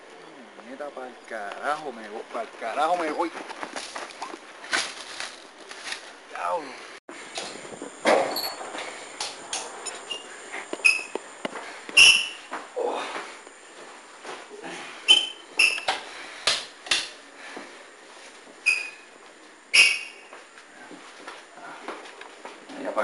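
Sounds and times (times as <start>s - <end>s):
shoe soles squeaking: 9.8s - 12.6s, 15.0s - 16.0s, 18.5s - 20.6s.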